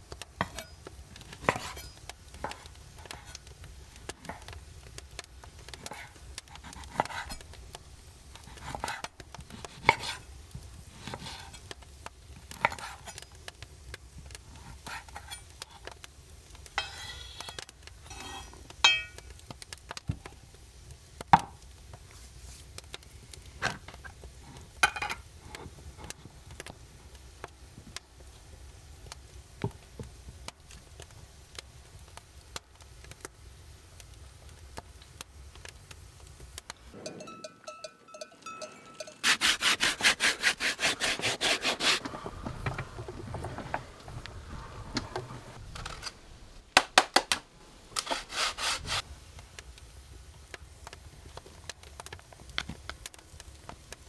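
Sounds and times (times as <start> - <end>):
knife sawing sausage: 39.0 - 42.0, 48.0 - 49.0.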